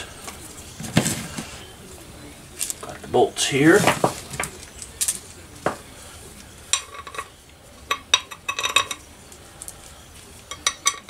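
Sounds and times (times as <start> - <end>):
metal bolts clinking: 6.7 - 7.3, 7.9 - 9.0, 10.5 - 11.0.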